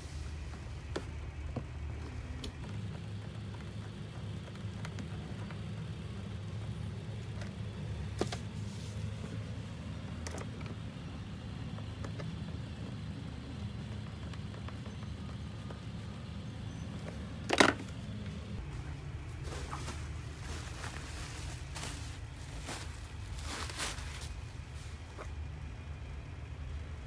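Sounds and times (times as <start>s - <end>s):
low background rumble: 0.0s - 27.0s
plastic parts clicking and tapping: 17.1s - 18.2s.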